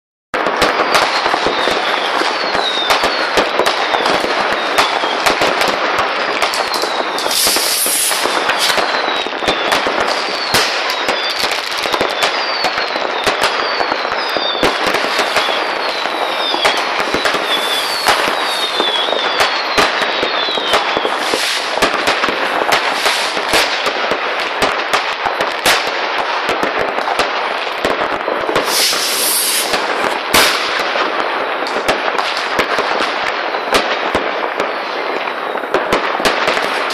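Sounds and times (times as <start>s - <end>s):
firework whistles falling in pitch: 0.4s - 23.7s, 28.3s - 30.8s, 33.3s - 34.0s, 34.6s - 35.8s
firecracker bangs and pops: 0.4s - 36.9s
hissing firework burst: 0.4s - 36.9s.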